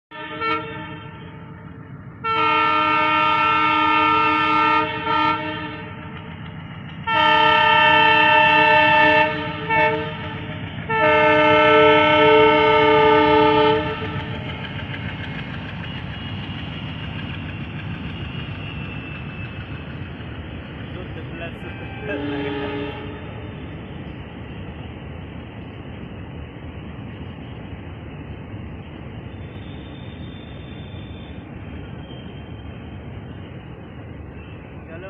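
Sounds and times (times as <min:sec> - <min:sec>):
train horn blasts: 0:00.1 - 0:06.1, 0:07.0 - 0:14.4, 0:21.4 - 0:23.6
low train rumble: 0:00.1 - 0:35.0.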